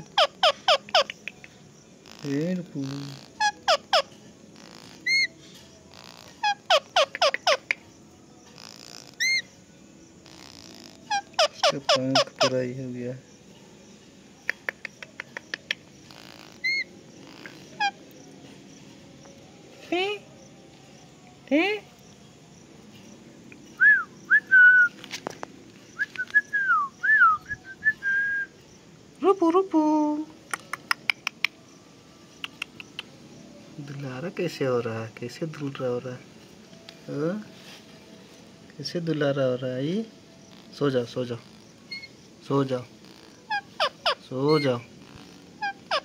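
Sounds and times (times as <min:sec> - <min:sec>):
parakeet calling and screeching: 0:00.0 - 0:01.2, 0:02.0 - 0:07.7, 0:08.6 - 0:09.5, 0:10.2 - 0:12.6, 0:16.0 - 0:18.1, 0:41.4 - 0:42.3, 0:43.0 - 0:46.0.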